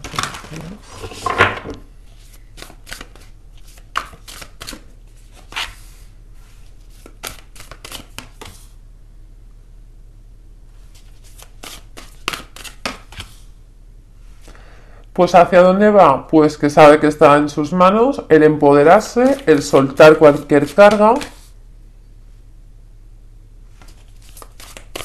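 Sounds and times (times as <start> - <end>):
cards being shuffled: 2.1 - 6.0, 6.7 - 8.7, 10.9 - 13.4, 18.9 - 21.5, 23.7 - 25.0.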